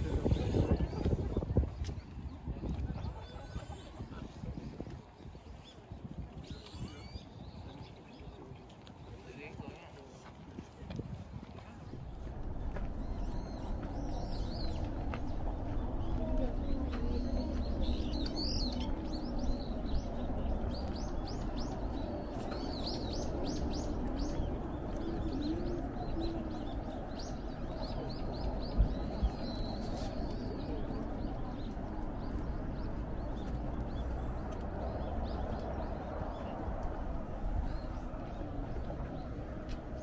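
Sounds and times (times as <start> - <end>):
low steady rumble: 11.8 - 40.0
small birds chirping: 11.9 - 40.0.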